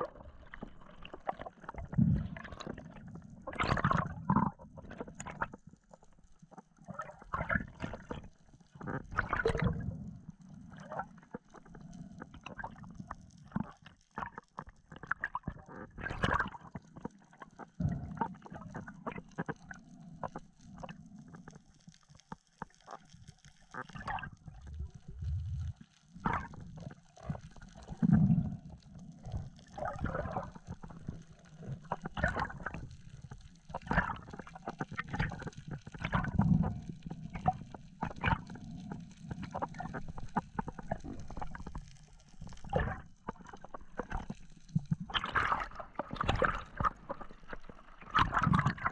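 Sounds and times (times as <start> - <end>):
water gurgling underwater: 0.0 - 21.8, 22.5 - 48.9.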